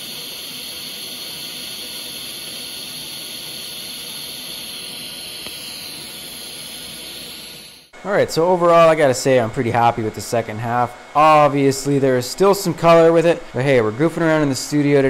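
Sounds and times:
welding arc hissing: 0.0s - 9.2s.

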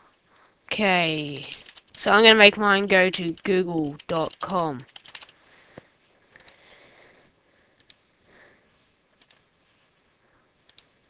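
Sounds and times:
keyboard and mouse clicks: 1.4s - 2.1s, 3.2s - 6.8s, 7.7s - 8.0s, 9.2s - 9.5s, 10.6s - 11.0s.

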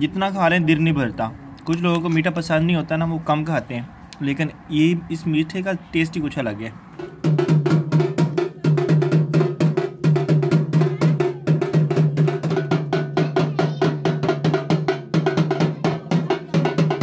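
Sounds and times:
barrel drum played with sticks: 7.0s - 17.0s.

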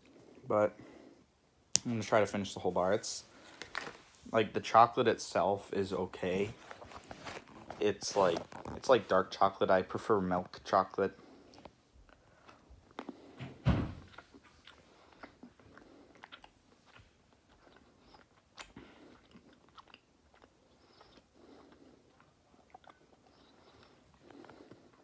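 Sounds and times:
chewing with mouth clicks: 11.4s - 13.3s, 14.1s - 25.0s
biting chocolate bar: 14.1s - 25.0s.

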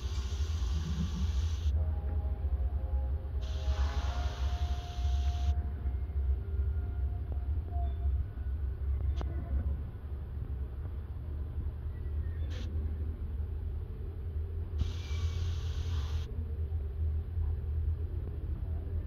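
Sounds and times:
low room rumble: 0.0s - 19.0s.

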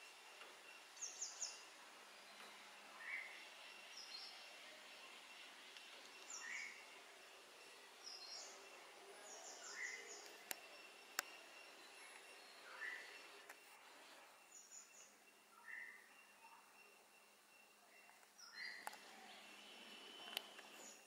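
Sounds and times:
bird chirping: 0.0s - 21.0s.

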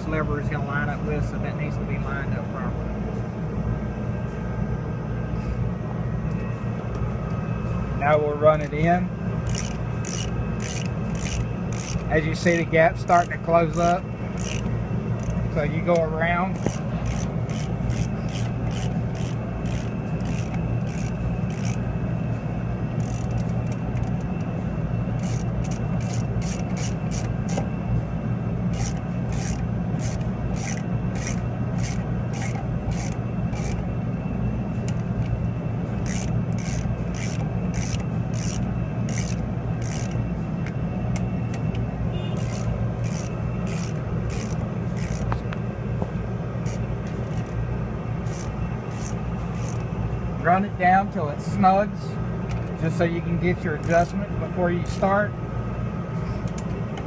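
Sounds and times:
steady low hum: 0.0s - 57.0s
ratchet wrench clicking: 8.5s - 21.9s, 22.9s - 24.5s, 25.1s - 27.7s, 28.7s - 33.9s, 36.0s - 41.8s, 42.4s - 45.6s, 46.6s - 47.6s, 48.2s - 49.9s, 53.8s - 54.1s, 54.8s - 55.1s.

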